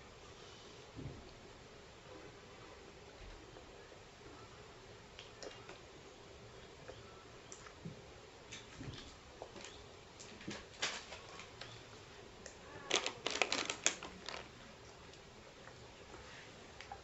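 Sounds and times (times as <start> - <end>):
plastic bottle and cups clicking: 12.9 - 14.5.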